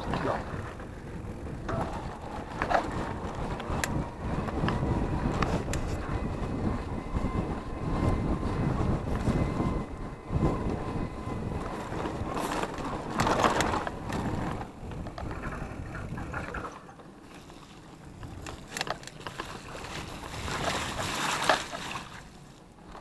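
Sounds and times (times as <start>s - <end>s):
tyres rolling over dirt: 0.0s - 5.4s, 11.4s - 23.0s
bike clicking and rattling: 0.0s - 23.0s
wind buffeting microphone: 0.0s - 23.0s.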